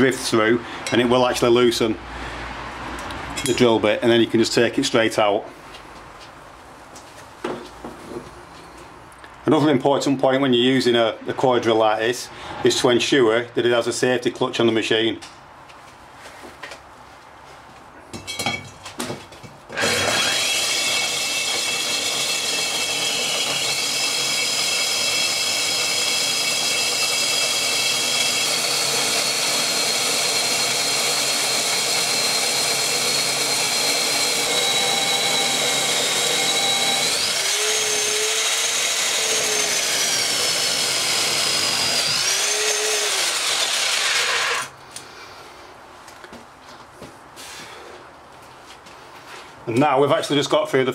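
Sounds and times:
core drill grinding into concrete: 19.7 - 44.7.

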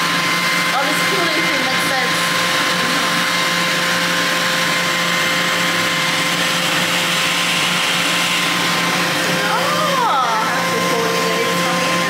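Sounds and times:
constant high whine: 0.0 - 12.0
fan whir: 0.0 - 12.0.

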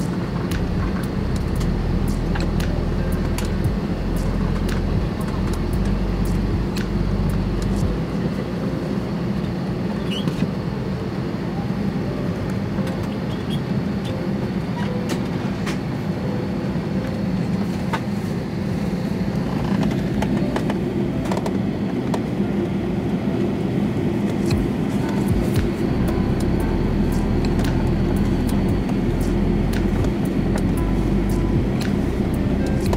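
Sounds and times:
deep rumble: 0.0 - 8.8, 24.4 - 32.9
aircraft cabin hum: 0.0 - 32.9.

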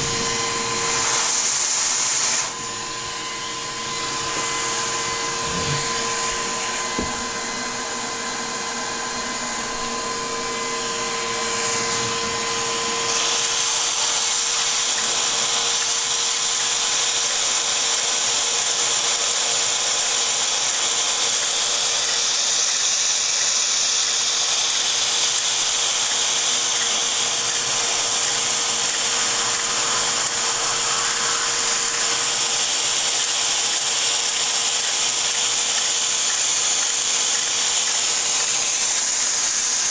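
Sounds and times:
model steam engine whirring hiss: 0.0 - 2.6, 13.0 - 39.9.

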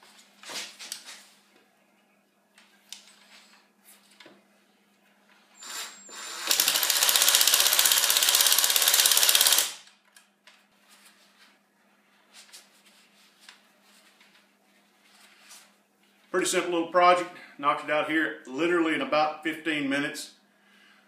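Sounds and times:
impact driver hammering screw: 5.7 - 9.8.

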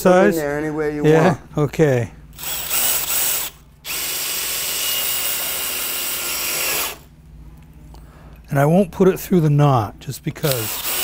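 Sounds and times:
cordless drill driving screw: 2.4 - 7.1, 10.4 - 11.0.

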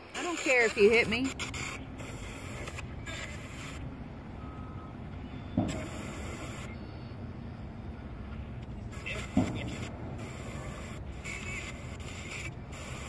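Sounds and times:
radio static sweeping: 0.0 - 3.9, 5.7 - 6.8, 8.8 - 13.0
radio blip: 9.0 - 13.0.

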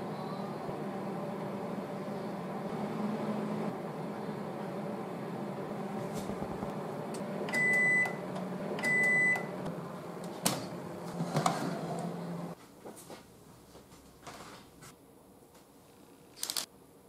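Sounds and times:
oven beeping: 0.0 - 12.6
oven humming: 0.0 - 12.6.

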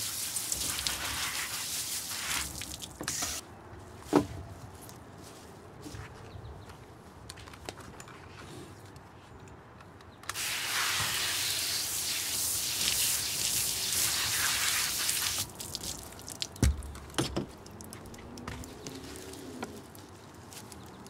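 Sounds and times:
water drips: 0.0 - 3.0, 14.9 - 20.0
water spray on glass: 0.0 - 3.4, 10.3 - 16.8.

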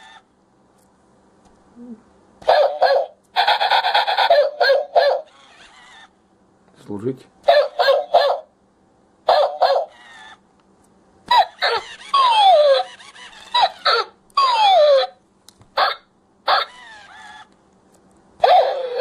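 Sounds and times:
toy dog barks and whines: 2.4 - 6.1, 7.4 - 8.5, 9.2 - 10.4, 11.3 - 15.2, 15.8 - 17.5, 18.4 - 19.0.

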